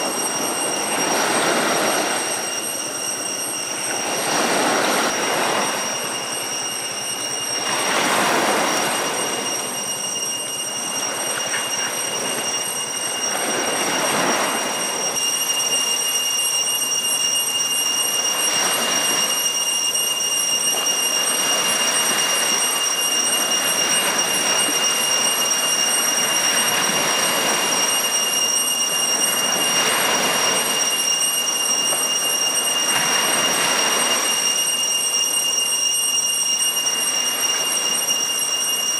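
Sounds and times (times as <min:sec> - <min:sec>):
steady high-pitched whine: 0:00.0 - 0:38.9
small waves breaking on sand: 0:03.6 - 0:06.4, 0:07.6 - 0:09.8.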